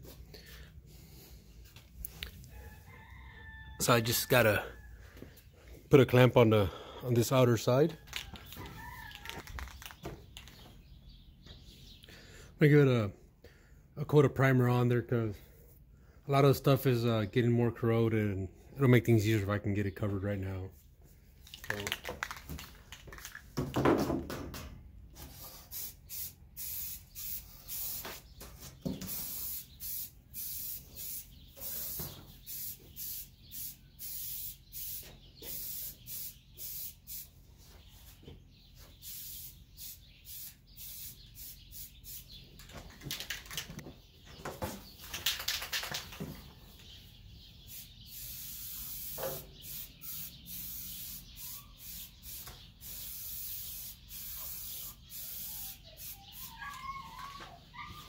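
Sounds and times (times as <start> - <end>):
aerosol spray can hissing in bursts: 25.3 - 28.3, 29.0 - 37.3, 38.9 - 42.4, 47.7 - 56.5.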